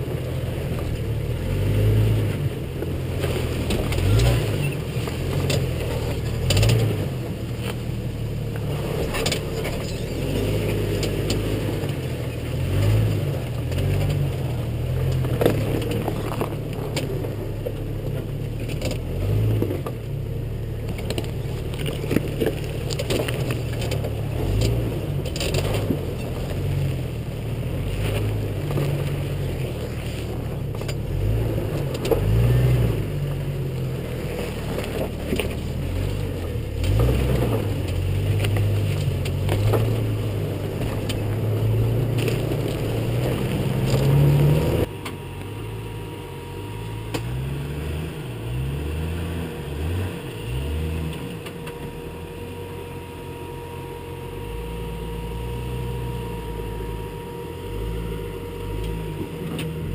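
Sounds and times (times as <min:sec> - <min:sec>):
engine rumble: 0:00.0 - 0:59.9
tyres crunching on rock: 0:20.8 - 0:27.0, 0:33.8 - 0:44.9.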